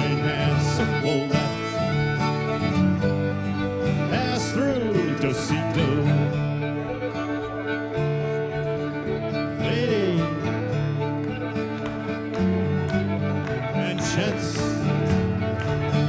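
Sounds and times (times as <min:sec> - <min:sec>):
fiddle: 0:00.0 - 0:16.0
guitar: 0:00.0 - 0:16.0.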